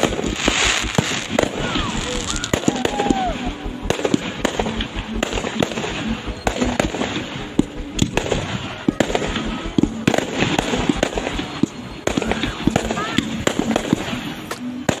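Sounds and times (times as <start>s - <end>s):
fireworks bursting: 0.0s - 15.0s.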